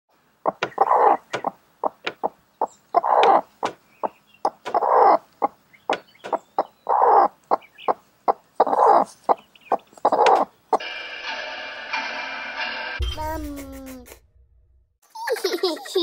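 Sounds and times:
hen clucking: 0:00.4 - 0:10.8.

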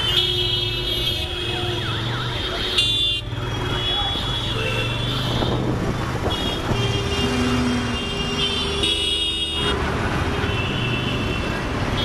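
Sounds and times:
motorbike engine and road noise: 0:00.0 - 0:12.0
vehicle horns honking: 0:00.0 - 0:12.0.

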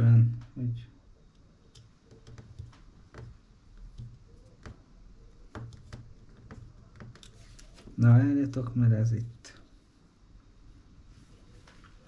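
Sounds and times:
screwdriver clicks and taps: 0:01.3 - 0:04.8, 0:05.5 - 0:07.4.

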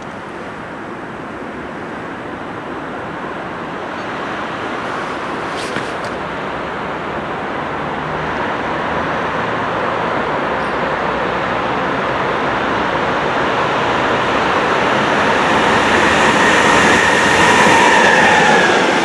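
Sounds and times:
freight train wheels on rails: 0:00.0 - 0:19.0.

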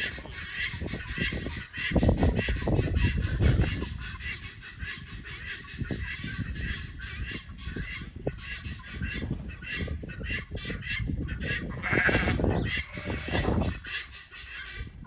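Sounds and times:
animal calls: 0:00.0 - 0:15.0
sheep bleating: 0:11.8 - 0:13.4.

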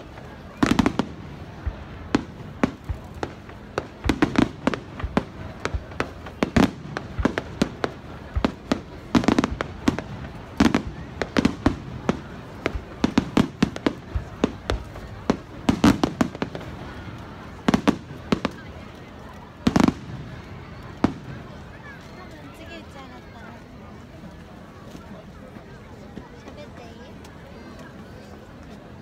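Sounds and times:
heavy fireworks booms: 0:00.0 - 0:22.0
fireworks bangs and crackling: 0:00.0 - 0:29.0.

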